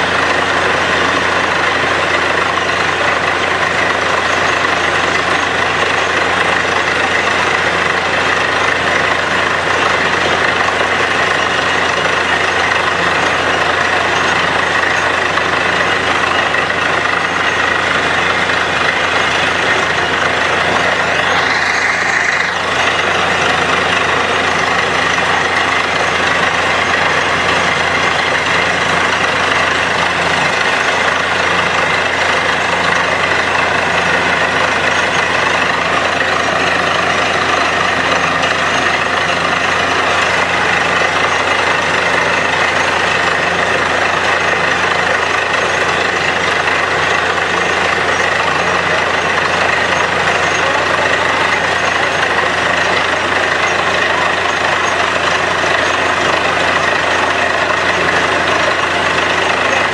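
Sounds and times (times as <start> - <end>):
drilling rig droning: 0.0 - 59.9.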